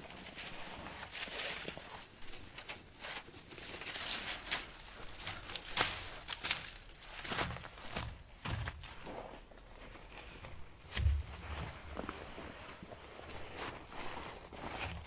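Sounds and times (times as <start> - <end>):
footsteps scuffing on gravel: 5.3 - 10.0, 10.8 - 15.0
heavy cloth rustling: 7.2 - 15.0.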